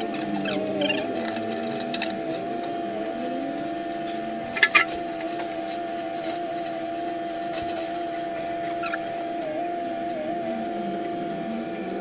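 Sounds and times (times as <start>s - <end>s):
steady high hum: 0.0s - 12.0s.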